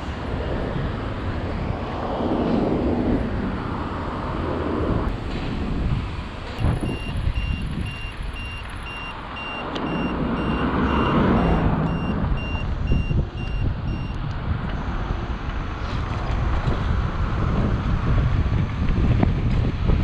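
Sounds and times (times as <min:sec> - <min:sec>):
road rumble: 0:00.0 - 0:20.0
wind buffeting microphone: 0:00.0 - 0:20.0
turn-signal high beeps: 0:06.8 - 0:14.2.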